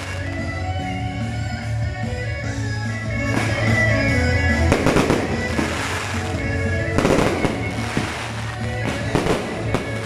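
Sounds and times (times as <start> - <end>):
fireworks bursting and crackling: 0.0 - 0.7, 3.1 - 10.0
background music: 0.0 - 10.0.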